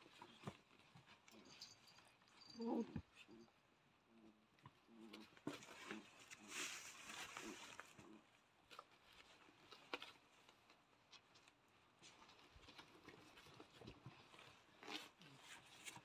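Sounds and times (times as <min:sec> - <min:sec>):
puppies scrambling on blankets: 0:08.7 - 0:16.0.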